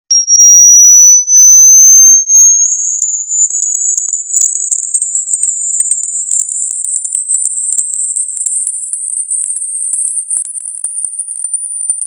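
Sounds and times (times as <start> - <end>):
high-pitched rising test tone: 0.1 - 3.6
faint ticks: 4.1 - 12.0.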